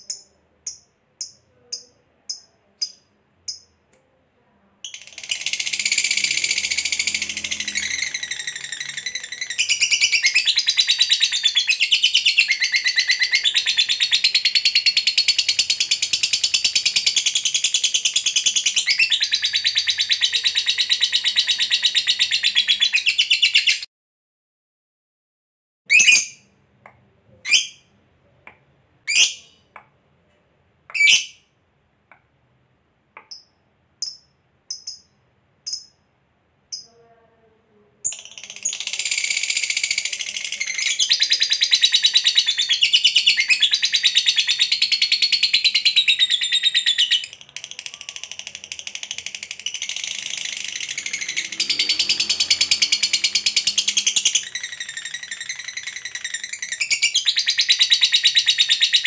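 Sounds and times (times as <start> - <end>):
bird chirps: 0.0 - 3.8, 4.9 - 23.9, 33.2 - 36.1, 38.1 - 59.0
rapid high chattering trill: 4.9 - 10.2.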